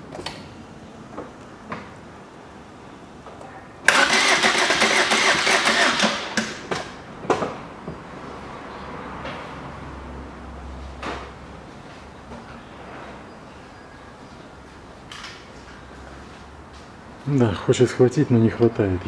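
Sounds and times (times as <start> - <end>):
starter motor cranking: 3.9 - 6.6.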